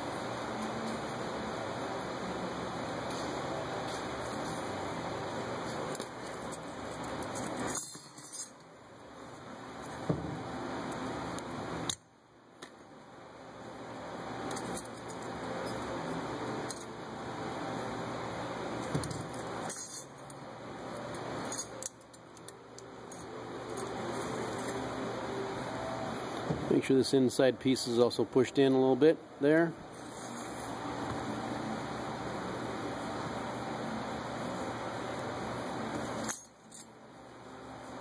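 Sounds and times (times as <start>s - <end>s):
steady background hiss: 0.0s - 38.0s
light metallic clicks and clinks: 5.9s - 8.7s, 18.8s - 24.8s, 35.9s - 37.0s.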